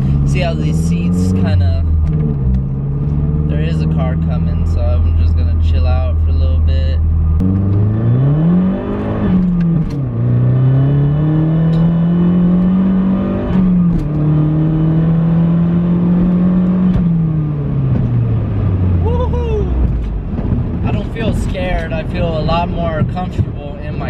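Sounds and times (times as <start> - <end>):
car engine accelerating hard: 0.0 - 5.7, 6.6 - 24.0.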